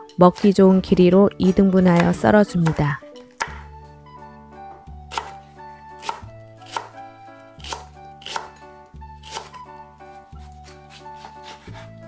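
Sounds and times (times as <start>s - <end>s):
soft background music: 0.0s - 12.0s
knife chopping on cutting board: 0.4s - 3.7s, 5.1s - 7.0s, 7.6s - 8.6s, 9.2s - 9.6s, 10.4s - 12.0s.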